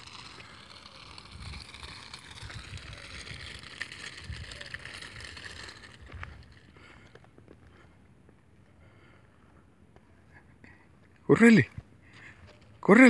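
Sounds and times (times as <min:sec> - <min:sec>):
wind rumbling on microphone: 0:00.0 - 0:07.1
steady outdoor hiss: 0:00.0 - 0:13.0.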